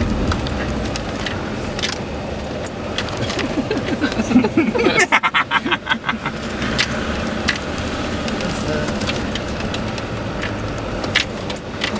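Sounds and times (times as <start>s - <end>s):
tyre and body rumble: 0.0s - 4.0s
diesel engine running: 0.0s - 11.9s.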